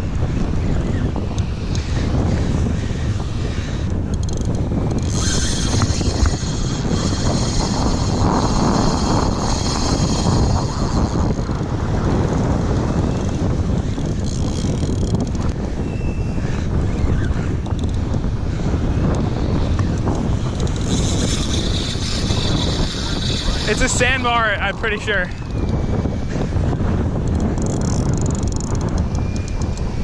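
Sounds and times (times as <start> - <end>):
wind buffeting microphone: 0.0 - 30.0
surf washing: 21.6 - 25.4.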